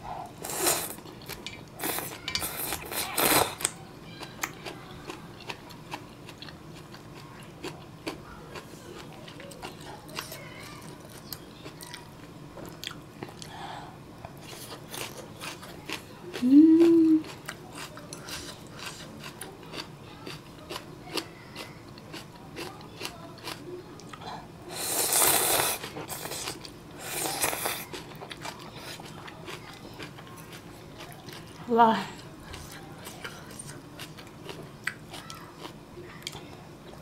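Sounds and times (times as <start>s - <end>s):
noodle slurping: 24.7s - 27.9s.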